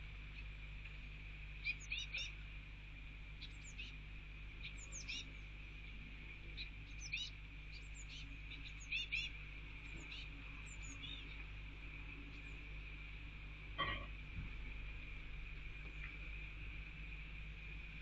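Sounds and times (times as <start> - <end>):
low electrical hum: 0.0 - 18.0
fledglings chirping: 1.6 - 2.4, 4.6 - 5.5, 6.6 - 11.5.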